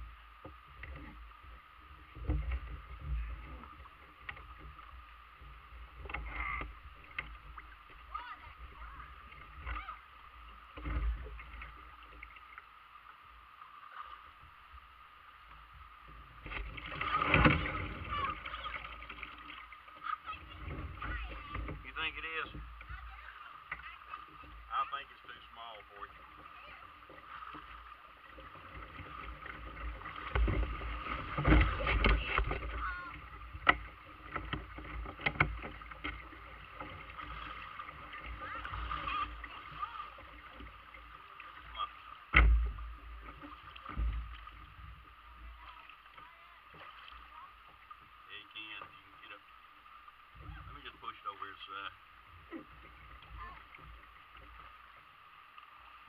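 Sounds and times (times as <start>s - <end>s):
creek water rippling over rocks: 0.0s - 56.0s
splashing and knocking: 2.0s - 5.0s, 10.6s - 12.4s, 16.3s - 48.0s
plastic kayak hull bumping and scraping: 2.0s - 12.4s, 16.3s - 24.7s, 26.2s - 47.4s
sharp knocks on kayak hull: 42.3s - 44.6s.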